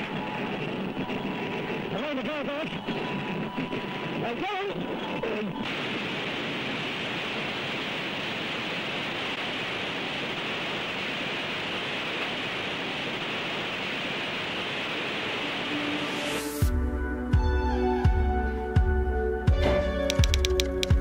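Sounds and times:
steady hiss: 0:05.6 - 0:16.7.

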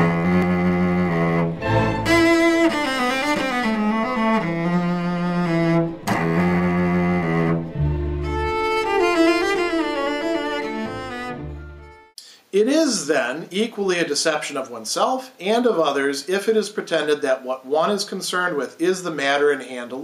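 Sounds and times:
instrumental intro music: 0:00.0 - 0:12.2.

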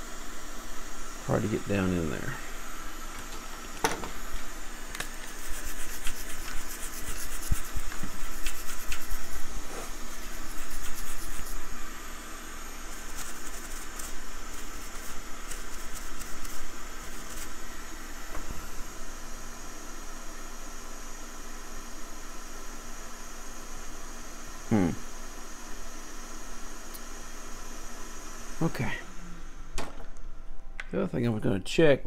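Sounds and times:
steady background hiss: 0:00.0 - 0:32.0
brush scrubbing circuit board: 0:05.0 - 0:11.8, 0:12.8 - 0:17.7.

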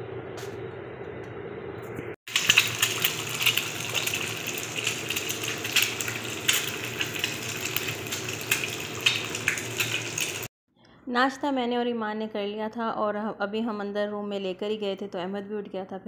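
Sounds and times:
egg sizzling in oil: 0:02.3 - 0:10.5.

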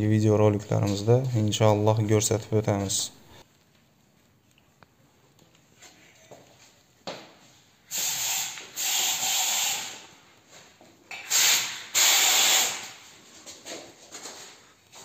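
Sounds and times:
bursts of rushing hiss: 0:07.9 - 0:10.0, 0:11.3 - 0:13.0.

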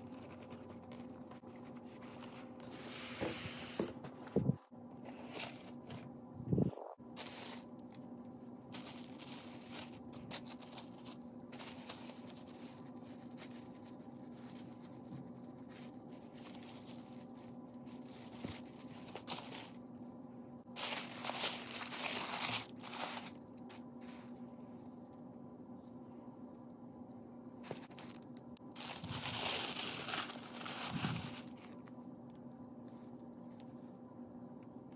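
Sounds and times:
faint steady hum: 0:00.0 - 0:34.9
tissue paper crinkling: 0:07.1 - 0:08.0, 0:08.7 - 0:19.8, 0:20.7 - 0:24.3, 0:27.6 - 0:31.9
cloth bag rustling: 0:20.8 - 0:23.4, 0:28.8 - 0:31.6.

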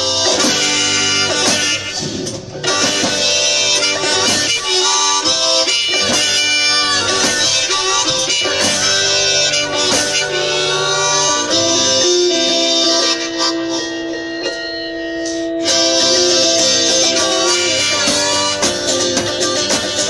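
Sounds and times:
harmonica melody: 0:00.0 - 0:20.0
strummed guitar: 0:00.0 - 0:20.0
drum hits: 0:00.4 - 0:04.8.

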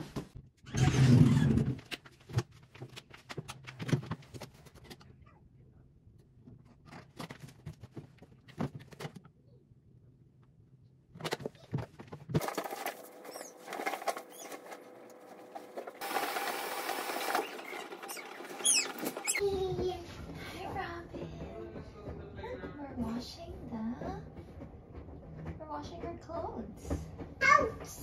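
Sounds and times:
bedding shaken: 0:11.2 - 0:21.0.

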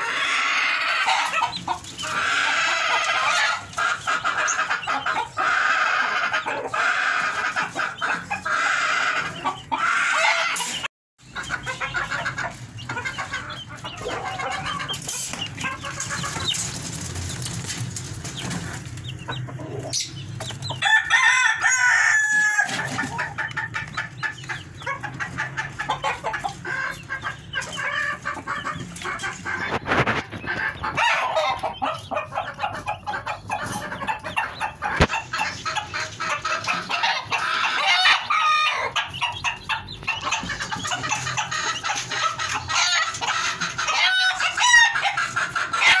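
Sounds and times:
chickens clucking: 0:00.0 - 0:46.0.

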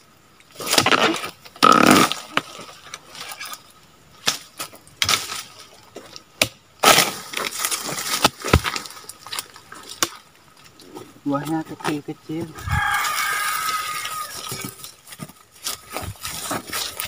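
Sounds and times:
chisel crunching palm fronds: 0:00.5 - 0:03.6, 0:06.4 - 0:10.2, 0:12.9 - 0:17.0.

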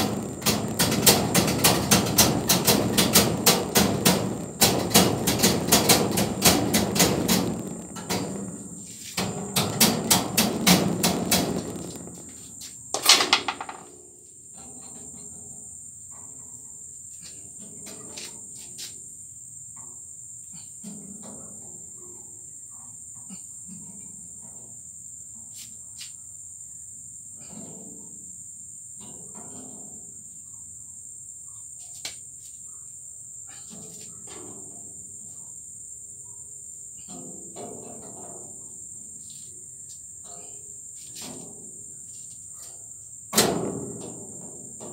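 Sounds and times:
hammer blows on metal frame: 0:00.0 - 0:13.9
crickets chirring: 0:00.0 - 0:44.9.

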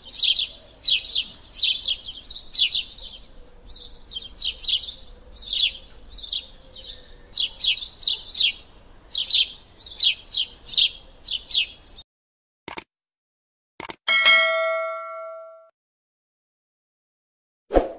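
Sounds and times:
small bird chirping: 0:00.0 - 0:12.0
clicks: 0:13.8 - 0:14.0
ringing bell ding: 0:14.1 - 0:15.7.

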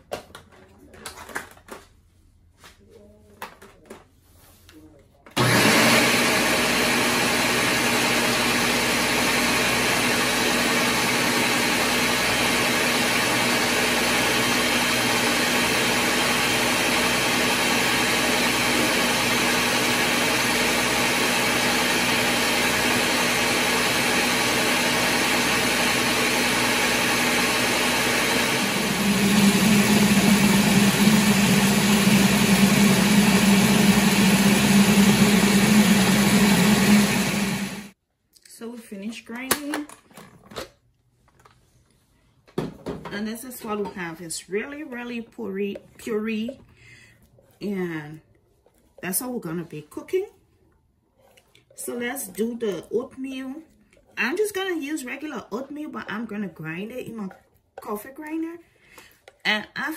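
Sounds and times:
blender running: 0:05.4 - 0:38.0.

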